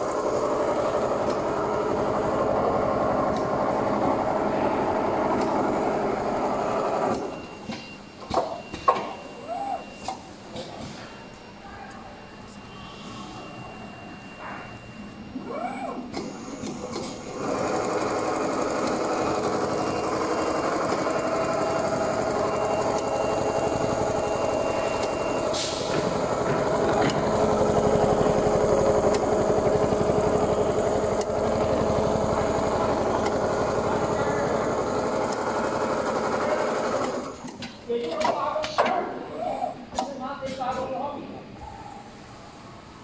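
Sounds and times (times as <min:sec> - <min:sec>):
sewing machine stitching: 0:17.3 - 0:37.5.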